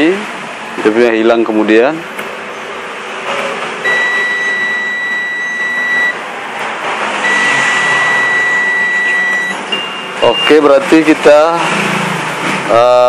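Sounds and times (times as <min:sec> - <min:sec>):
multimeter high beep: 0:03.8 - 0:06.2, 0:07.2 - 0:10.7.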